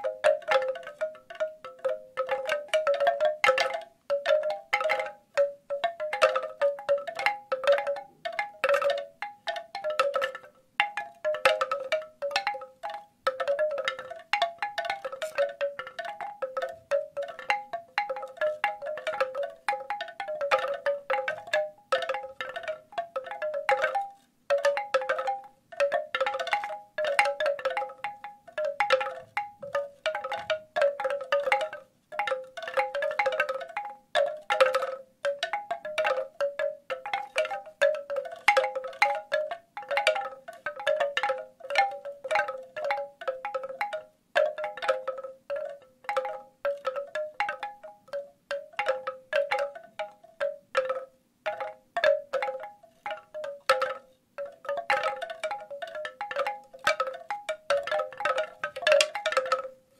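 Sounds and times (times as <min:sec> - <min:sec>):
bamboo wind chimes knocking: 0:00.0 - 0:59.9.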